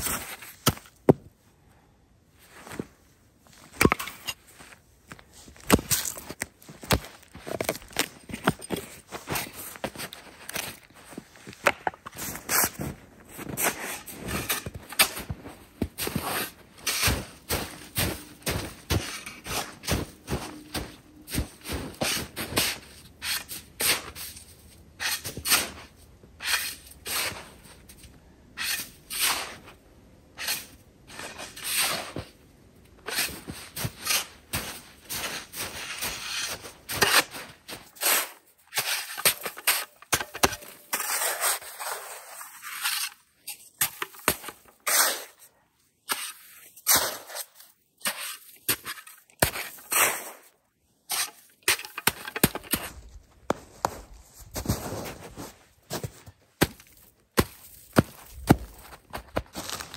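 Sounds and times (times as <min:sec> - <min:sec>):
snow shovel scraping packed snow: 0:02.4 - 0:28.0, 0:28.6 - 0:29.8, 0:30.4 - 0:32.4, 0:33.0 - 0:45.4, 0:53.6 - 0:56.3.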